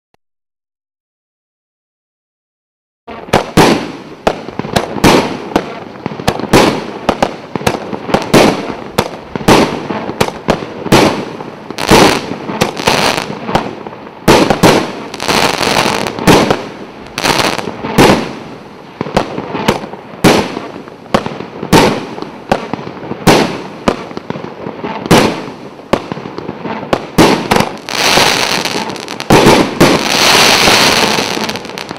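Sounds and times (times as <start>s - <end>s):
crackling firework fizz: 3.1s - 31.9s.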